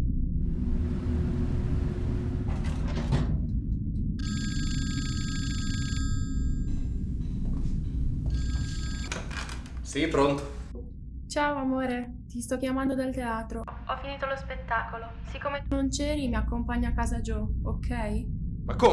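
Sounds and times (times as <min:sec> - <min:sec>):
low drone: 0:00.0 - 0:04.2
telephone bell ringing: 0:04.2 - 0:06.7, 0:08.3 - 0:09.1.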